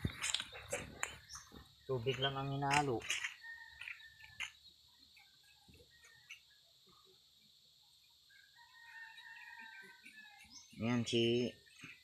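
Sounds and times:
distant chicken calls: 8.1s - 10.8s.

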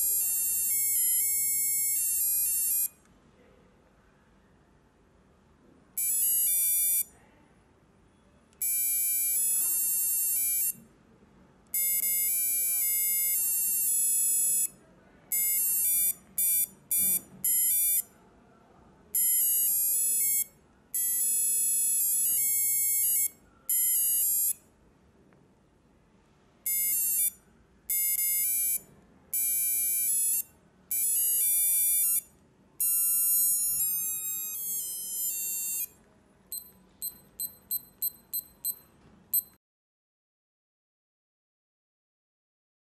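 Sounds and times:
alarm clock buzzer beeping tune: 0.0s - 2.9s, 6.0s - 7.1s, 8.6s - 10.8s, 11.8s - 14.7s, 15.3s - 18.1s, 19.2s - 24.6s, 26.7s - 35.9s, 36.5s - 39.6s.

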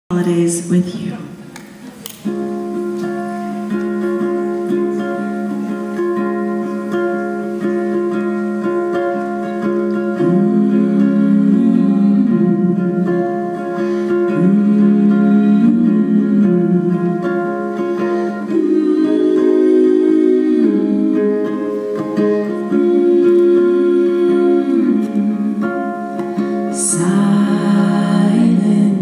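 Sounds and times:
ukulele playing: 1.4s - 29.0s
hummed vocal harmonies: 2.3s - 29.0s
moving vocal line: 9.3s - 29.0s.

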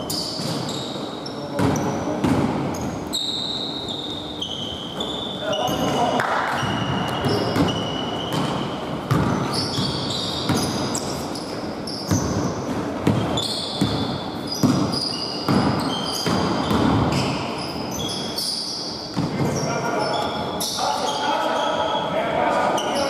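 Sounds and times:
sneakers squeaking: 0.0s - 23.0s
basketball bouncing: 1.6s - 2.9s, 5.7s - 11.0s, 12.0s - 17.3s.

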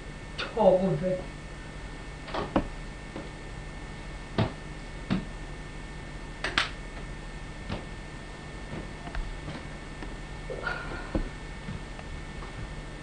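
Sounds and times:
low hum: 0.0s - 13.0s
sharp clicks and knocks: 6.4s - 6.8s.

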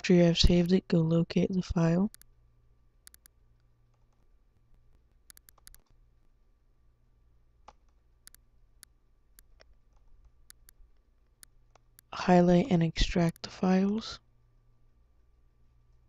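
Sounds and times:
low steady hum: 0.0s - 16.0s
mouse button clicks: 5.3s - 5.8s, 10.5s - 10.8s.

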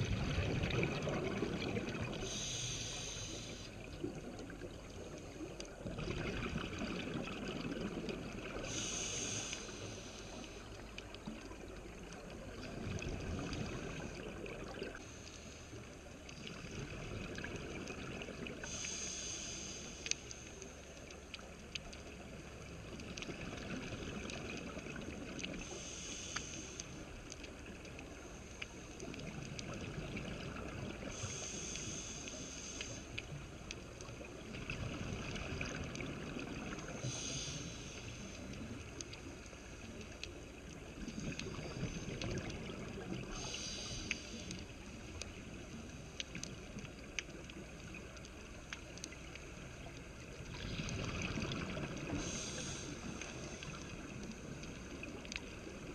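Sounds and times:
bubbly exhalations underwater: 0.0s - 2.3s, 5.8s - 8.6s, 50.5s - 52.6s
low steady rumble: 0.0s - 55.9s
faint clicks: 1.9s - 5.9s, 7.6s - 55.9s
scuba regulator hiss: 2.2s - 3.8s, 8.6s - 10.6s, 18.6s - 20.4s, 25.6s - 26.9s, 31.1s - 33.1s, 37.0s - 38.3s, 43.4s - 44.6s, 52.1s - 53.6s.

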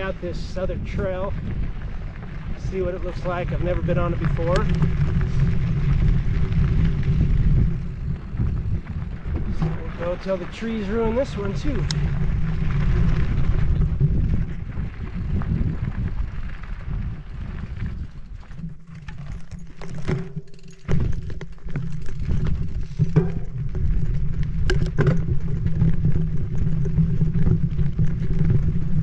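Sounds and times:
wind buffeting microphone: 0.0s - 20.2s, 20.8s - 29.0s
bike tyres rumbling on dirt: 0.0s - 29.0s
small rattles: 18.0s - 29.0s.

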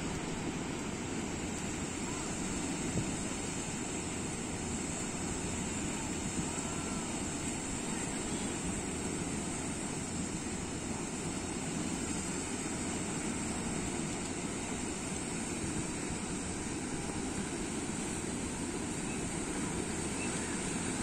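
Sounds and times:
small waves washing up beach: 0.0s - 21.0s
wind rumbling on microphone: 0.0s - 21.0s.

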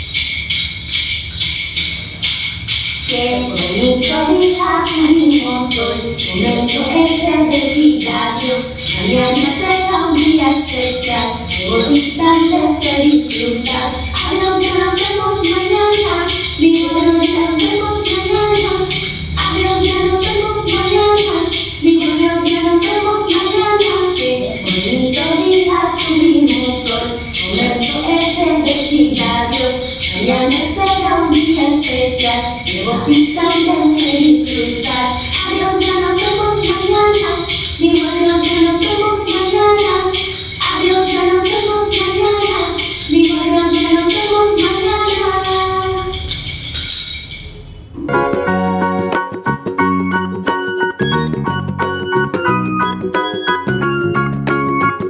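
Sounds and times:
jingling percussion beat: 0.0s - 55.0s
tune with bell-like tones: 0.0s - 55.0s
woman singing children's song: 3.0s - 46.5s.

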